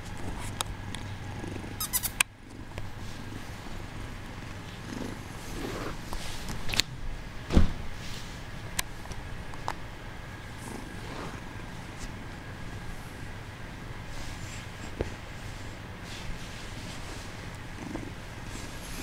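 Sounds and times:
kitten purring: 0.2s - 6.3s, 10.4s - 12.5s, 14.1s - 19.0s
loud thump: 7.5s - 7.8s.

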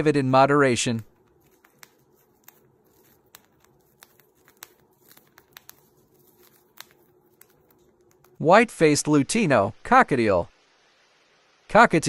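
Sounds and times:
bird cracking seeds with beak: 1.1s - 8.4s.

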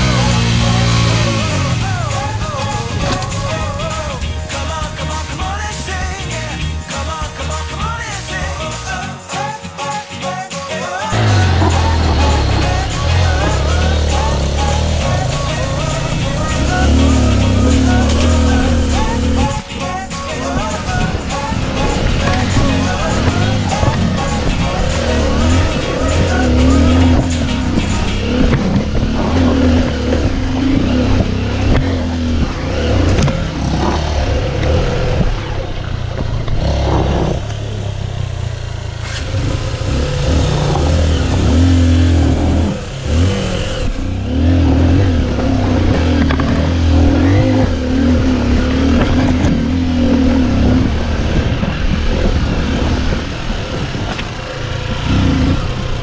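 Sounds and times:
motorcycle engine revving: 0.0s - 6.9s, 11.0s - 56.0s
bike knocking and rattling: 11.2s - 43.0s, 45.3s - 49.9s.

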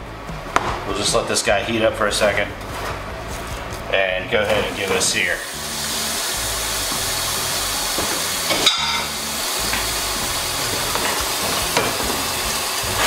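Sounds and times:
meat sizzling in a pan: 4.7s - 13.0s.

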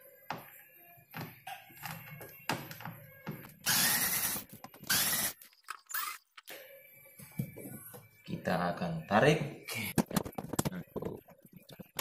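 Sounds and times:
electric screwdriver running: 3.7s - 6.2s.

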